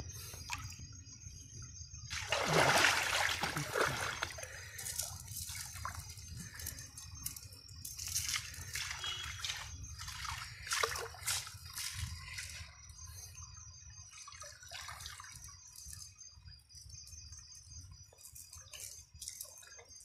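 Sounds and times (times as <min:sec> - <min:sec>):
water sloshing and trickling: 0:00.0 - 0:20.0
small splashes: 0:02.1 - 0:06.8, 0:08.0 - 0:12.6.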